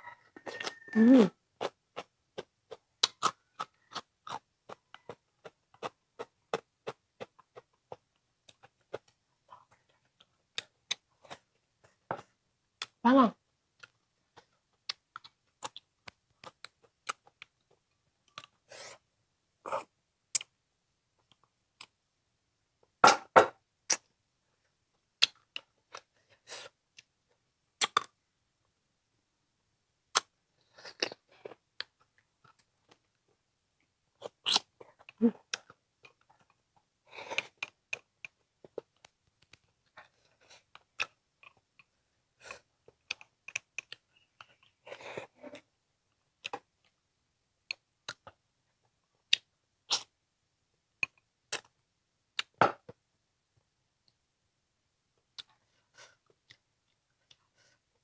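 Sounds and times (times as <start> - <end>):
wet chewing and mouth smacking: 1.6 - 11.5, 13.8 - 18.6, 34.2 - 36.6, 37.3 - 45.3.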